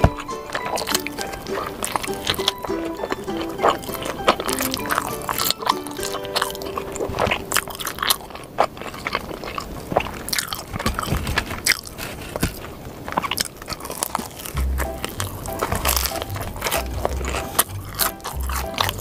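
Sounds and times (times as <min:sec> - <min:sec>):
background music: 0:00.0 - 0:08.1, 0:14.5 - 0:19.0
crackly clicks: 0:00.0 - 0:19.0
crunchy bites and chewing: 0:00.0 - 0:19.0.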